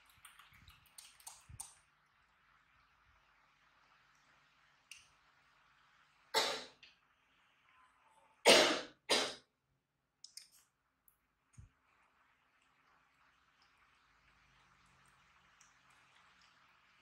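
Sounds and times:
faint clicks: 0.0s - 1.8s, 4.1s - 5.2s, 10.2s - 11.7s
person coughing: 6.4s - 6.8s, 8.5s - 9.4s.

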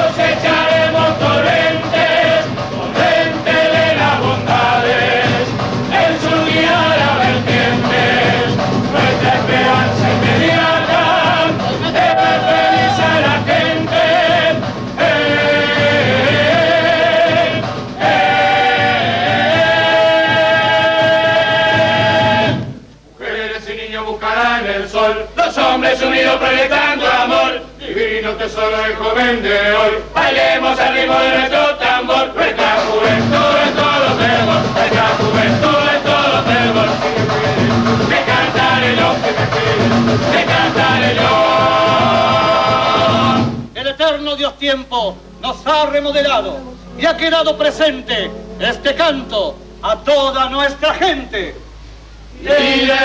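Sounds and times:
percussion: 0.0s - 22.9s, 30.1s - 43.8s
men singing in harmony: 0.0s - 43.6s, 52.2s - 53.0s.

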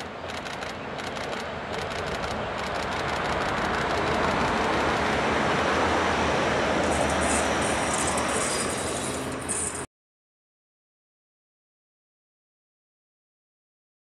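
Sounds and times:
train engine hum: 0.0s - 9.9s
train wheels rolling on rails: 0.0s - 9.9s.

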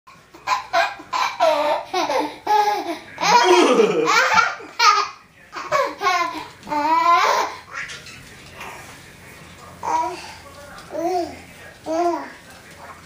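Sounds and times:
toddler laughing: 0.4s - 8.0s.

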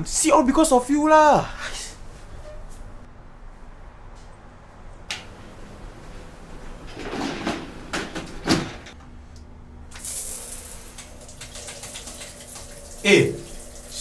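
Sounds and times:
shower spraying water: 9.9s - 14.0s.

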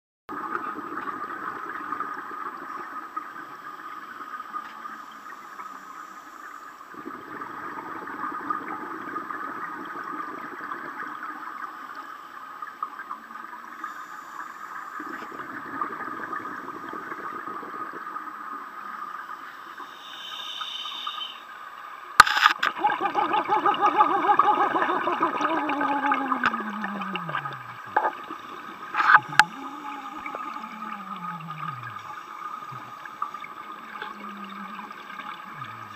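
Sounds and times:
diver exhaling bubbles: 22.8s - 35.9s.

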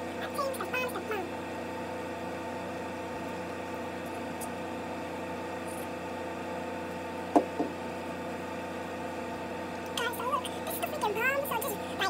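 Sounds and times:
steady hum with fixed tones: 0.0s - 12.0s
sharp knocks: 7.3s - 7.8s.

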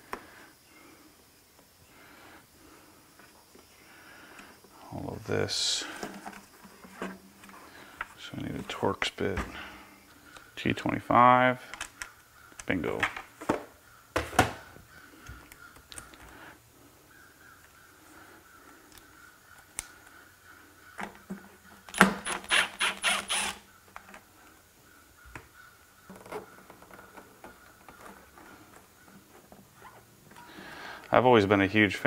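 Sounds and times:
clicks of tool and plastic parts: 11.7s - 13.6s
screwdriver backing out screws: 21.9s - 23.6s.

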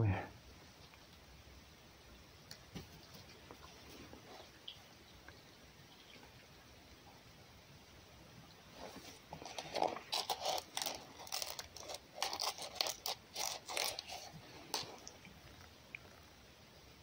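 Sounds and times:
fox crunching food: 8.8s - 16.3s.

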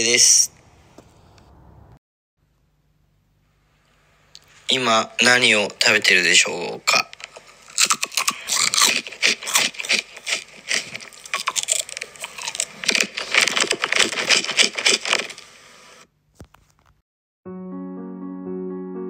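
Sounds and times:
crunching rice crackers: 7.0s - 15.5s.

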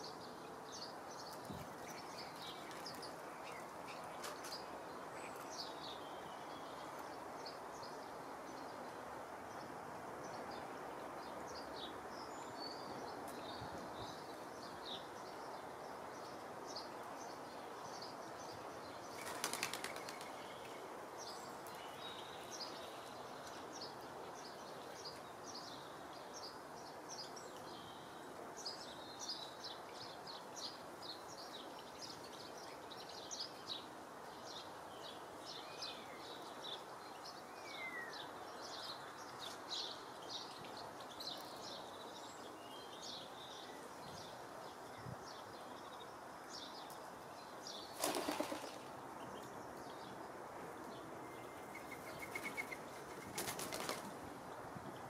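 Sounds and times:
small birds chirping: 0.0s - 9.0s, 10.3s - 55.0s
background hiss: 0.0s - 55.0s
flutter of wingbeats: 19.1s - 20.5s, 47.9s - 48.9s, 51.6s - 54.2s.

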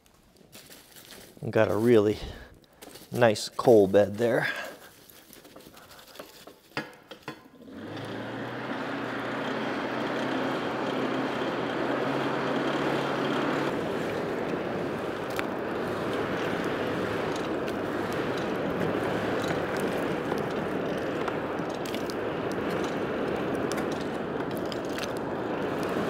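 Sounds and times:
forge blower whirring: 7.6s - 26.0s.

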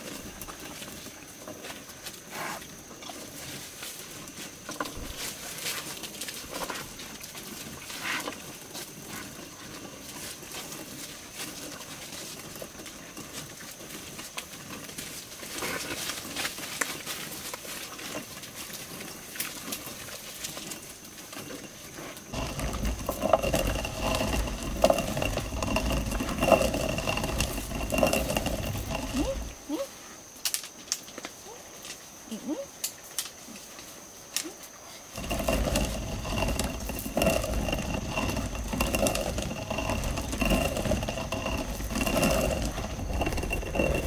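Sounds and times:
pigs snuffling and chewing: 0.0s - 44.0s
stone mill grinding: 4.7s - 5.4s, 22.3s - 29.6s, 35.1s - 44.0s.

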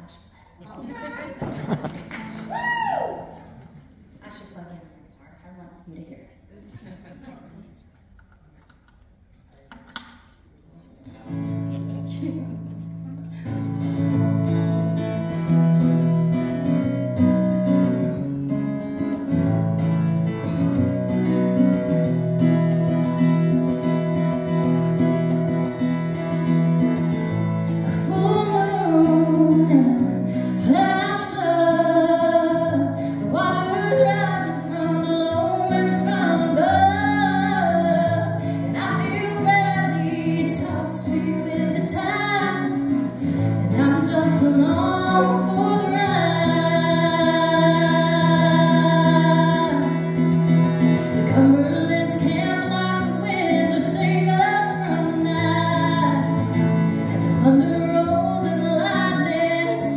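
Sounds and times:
acoustic guitar strumming: 11.2s - 59.9s
woman singing: 27.8s - 50.4s, 51.0s - 59.9s.

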